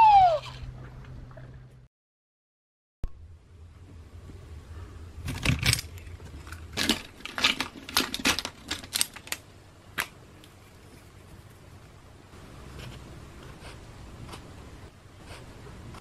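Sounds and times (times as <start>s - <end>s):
pens and pencils clattering: 5.2s - 10.6s.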